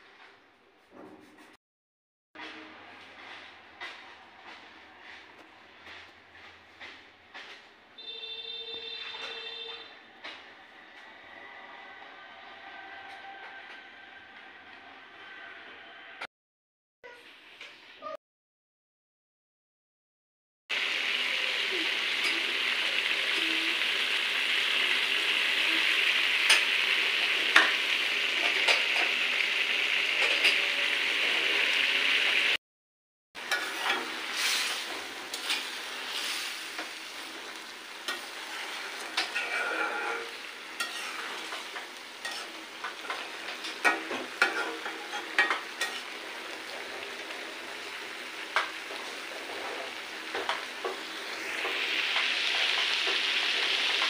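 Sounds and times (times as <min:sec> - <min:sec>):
curry sizzling and bubbling in a pot: 0:20.7 - 0:32.6, 0:33.4 - 0:54.0
metal spatula scraping a pot: 0:33.4 - 0:37.4, 0:38.0 - 0:46.2.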